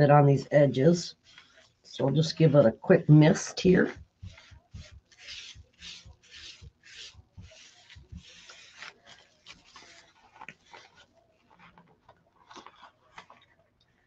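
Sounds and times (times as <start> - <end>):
plastic wrap rubbing on paper: 1.1 - 1.9, 3.7 - 14.0.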